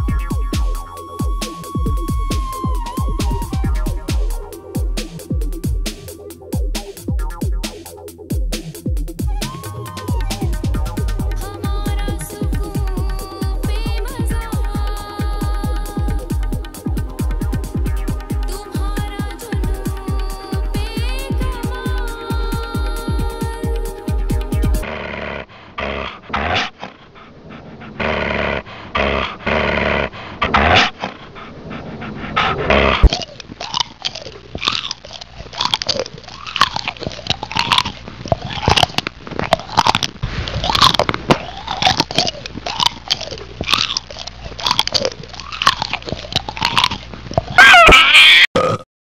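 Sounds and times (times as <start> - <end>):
electronic music: 0.0 - 24.8
creature growls and snarls: 24.8 - 48.8.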